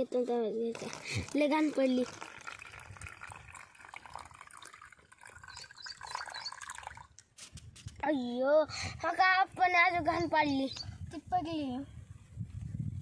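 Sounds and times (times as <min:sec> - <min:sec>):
water splashing and trickling: 0:00.0 - 0:07.4
water pouring into plastic cups: 0:00.5 - 0:07.3.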